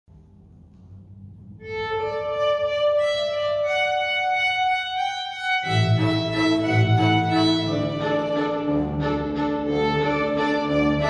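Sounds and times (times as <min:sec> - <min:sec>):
double bass low notes: 0:00.1 - 0:03.4
violins playing long held notes: 0:01.6 - 0:11.0.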